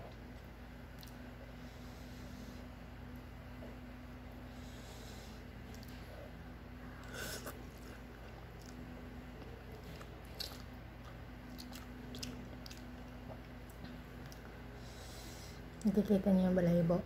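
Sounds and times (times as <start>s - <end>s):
quiet chewing: 0.1s - 1.3s, 5.5s - 6.4s, 7.0s - 14.9s.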